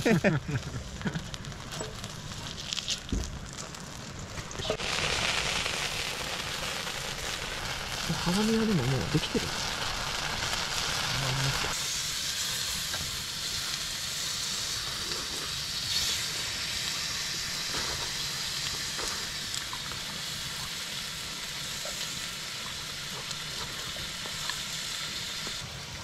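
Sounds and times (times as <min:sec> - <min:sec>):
meat sizzling on griddle: 0:00.0 - 0:26.0.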